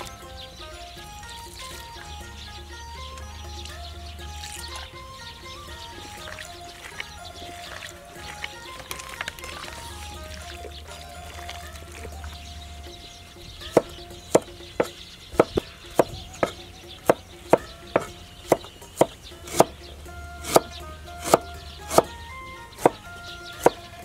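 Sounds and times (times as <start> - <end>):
cleaver chopping on wooden block: 13.6 - 19.8, 20.4 - 24.0.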